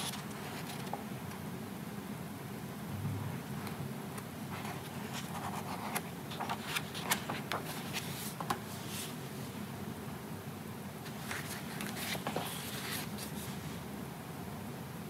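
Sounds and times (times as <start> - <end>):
paper pages flipping: 0.0 - 1.1, 4.5 - 9.2, 11.1 - 13.6.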